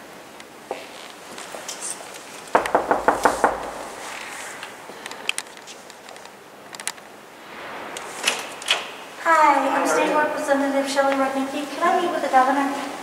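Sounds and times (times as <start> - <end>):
knocking on wooden door: 2.5 - 4.1.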